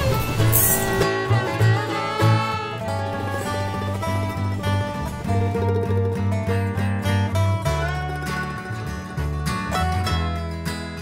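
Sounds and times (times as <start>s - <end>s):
plucked string music: 0.0s - 11.0s.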